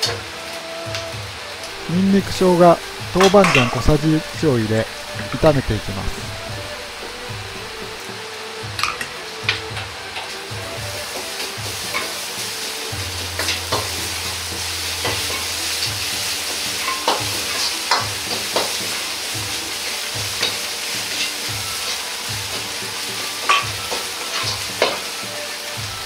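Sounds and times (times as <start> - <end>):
meat sizzling in a wok: 0.0 - 26.0
metal ladle scraping a wok: 2.8 - 8.0, 11.8 - 22.0.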